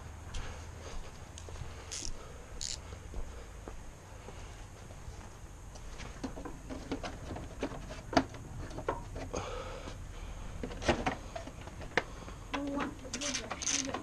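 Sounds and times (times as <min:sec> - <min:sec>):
tools and parts clicking: 0:01.9 - 0:02.8, 0:13.1 - 0:14.0.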